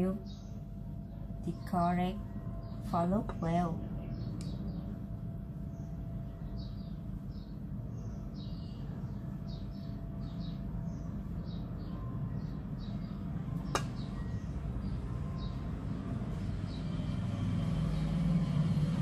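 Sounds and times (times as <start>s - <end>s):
small birds chirping: 0.0s - 19.0s
steady low rumble: 0.0s - 19.0s
sharp click: 13.7s - 14.0s.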